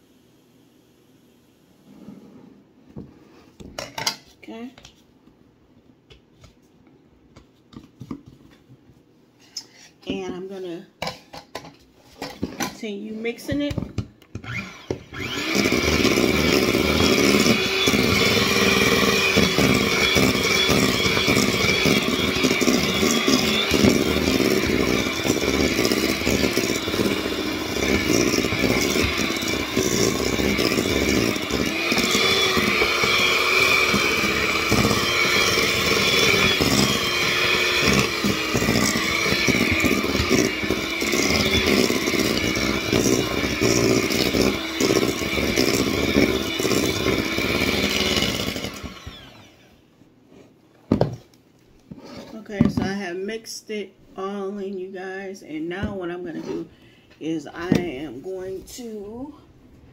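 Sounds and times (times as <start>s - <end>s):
electric hand mixer whirring: 14.4s - 49.8s.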